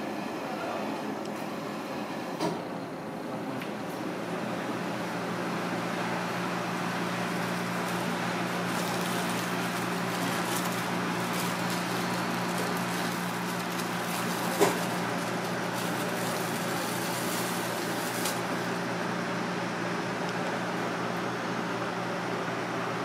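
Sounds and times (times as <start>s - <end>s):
ventilation fan hum: 0.0s - 23.0s
plastic bag crackling: 6.7s - 18.8s.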